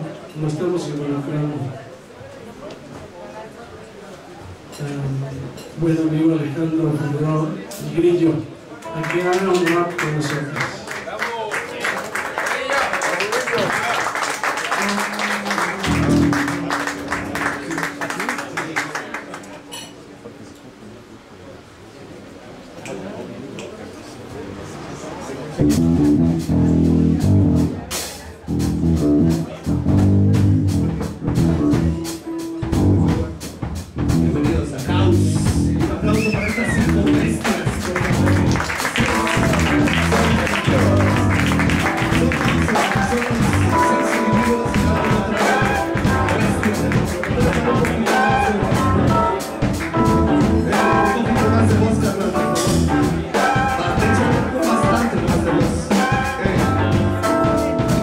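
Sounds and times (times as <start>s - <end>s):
audience applause: 8.9s - 19.8s, 36.4s - 48.7s
drums: 13.0s - 19.9s, 25.6s - 58.0s
electric guitars: 14.8s - 20.1s, 34.0s - 58.0s
held low amplified note: 15.6s - 20.4s
electric bass line: 15.8s - 18.7s, 25.6s - 27.8s, 28.5s - 32.0s, 32.6s - 33.4s, 34.0s - 36.2s, 38.1s - 45.3s, 45.9s - 47.9s, 48.7s - 49.3s, 49.9s - 53.3s, 53.9s - 54.5s, 56.5s - 58.0s.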